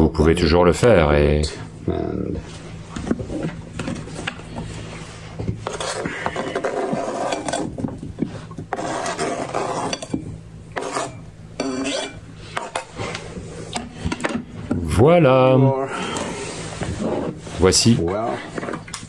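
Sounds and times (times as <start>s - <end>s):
knife scraping plastic board: 5.4s - 14.1s, 16.1s - 17.6s.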